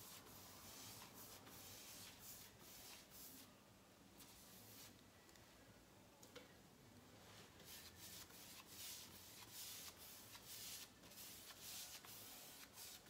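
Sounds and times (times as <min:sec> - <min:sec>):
paintbrush swishing on wood: 0:00.0 - 0:03.5, 0:07.3 - 0:13.0.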